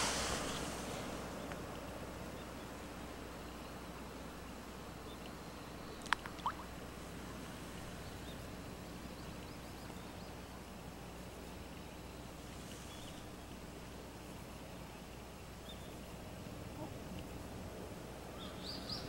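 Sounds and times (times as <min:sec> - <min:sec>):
background hiss: 0:00.0 - 0:19.0
faint bird chirps: 0:04.9 - 0:06.8.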